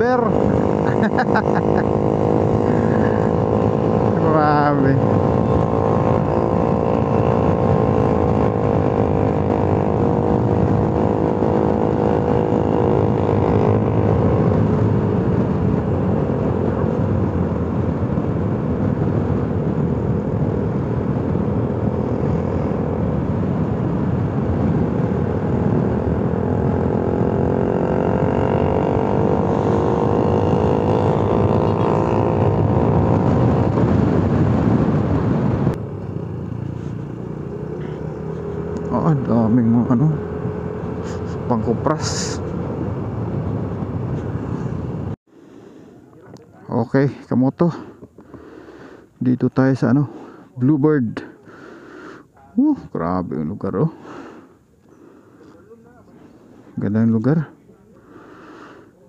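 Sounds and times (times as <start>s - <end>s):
motorcycle engine running: 0.0s - 45.2s.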